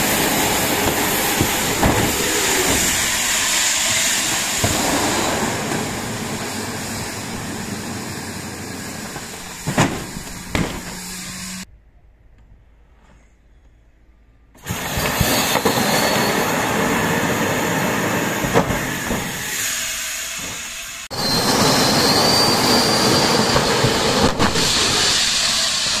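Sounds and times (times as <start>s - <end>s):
evacuation slide inflating hiss: 0.0s - 11.6s, 14.6s - 26.0s
faint high whistle: 14.8s - 17.2s, 18.9s - 26.0s.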